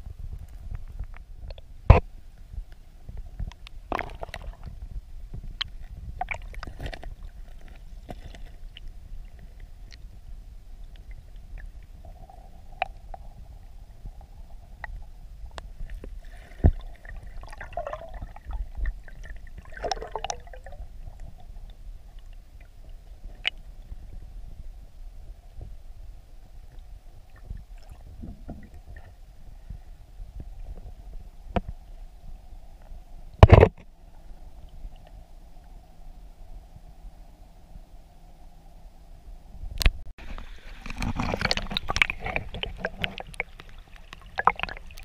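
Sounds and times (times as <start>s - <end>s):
underwater stream rumble: 0.0s - 45.0s
sharp underwater clicks and knocks: 33.4s - 33.9s, 39.8s - 45.0s.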